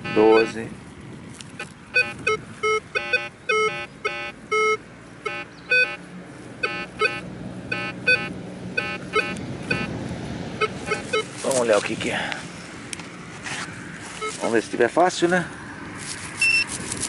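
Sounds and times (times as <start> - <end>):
metal detector beeps: 0.0 - 0.6, 1.6 - 6.0, 6.6 - 9.9, 10.6 - 11.3, 14.2 - 14.5, 16.4 - 16.7.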